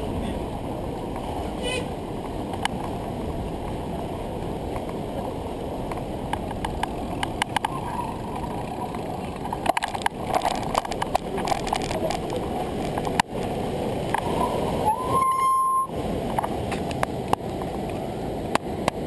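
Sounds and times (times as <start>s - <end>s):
wind noise on microphone: 0.0s - 19.0s
bike and mount clicks and rattles: 2.5s - 3.0s, 5.8s - 13.3s, 16.3s - 19.0s.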